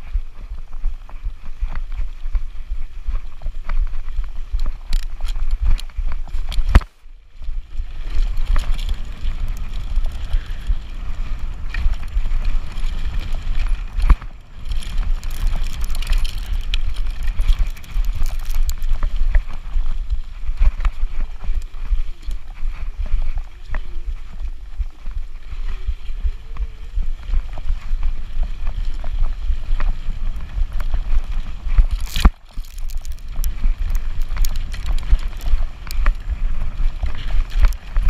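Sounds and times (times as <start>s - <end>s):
bike rumbling over rough trail: 0.0s - 38.0s
bike rattles and knocks: 7.8s - 24.4s, 26.6s - 38.0s.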